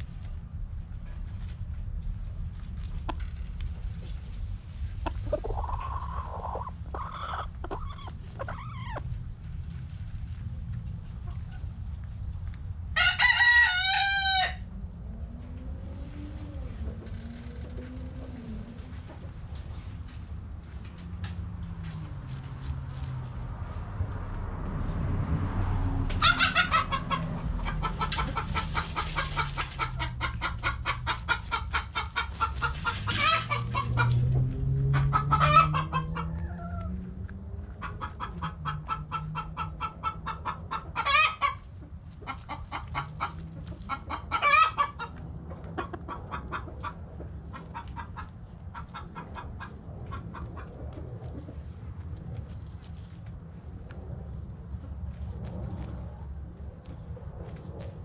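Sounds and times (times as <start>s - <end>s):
chickens clucking: 2.5s - 12.6s, 15.1s - 21.1s, 25.5s - 54.0s
loud chicken calls: 5.3s - 9.0s, 13.0s - 14.7s, 26.1s - 34.2s, 34.8s - 37.0s, 37.9s - 41.6s, 42.3s - 45.1s.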